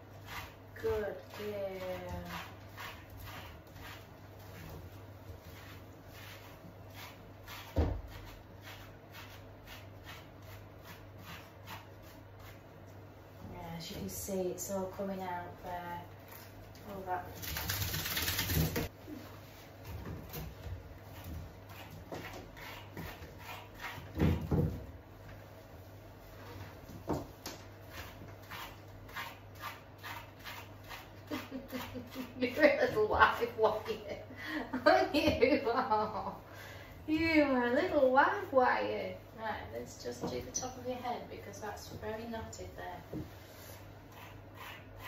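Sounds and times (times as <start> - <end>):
brush scratching through wet fur: 0.0 - 12.7, 21.0 - 24.1, 27.8 - 34.1, 43.4 - 45.0.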